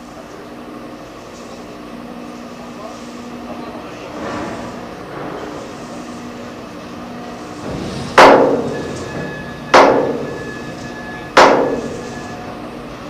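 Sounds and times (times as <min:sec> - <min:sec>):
hammer striking steel: 0:07.8 - 0:12.3.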